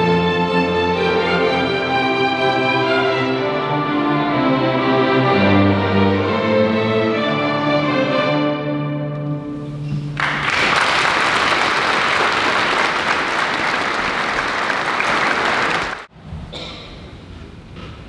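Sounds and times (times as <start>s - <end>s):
audience applauding: 10.2s - 16.1s.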